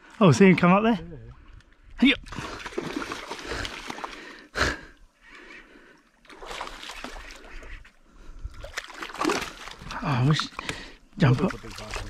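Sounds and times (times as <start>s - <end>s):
fish thrashing and splashing: 2.2s - 4.5s, 6.2s - 12.0s.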